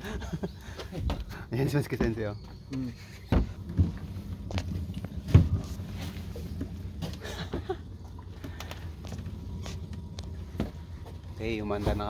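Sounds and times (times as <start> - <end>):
footsteps on boat deck: 0.0 - 12.0
low steady hum: 0.0 - 12.0.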